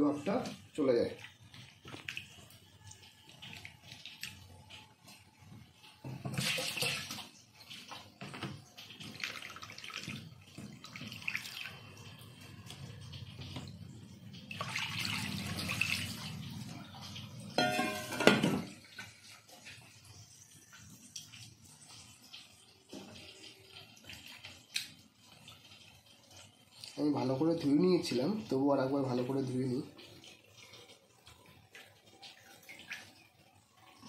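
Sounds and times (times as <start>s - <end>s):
water pouring into bowl: 8.6s - 34.0s.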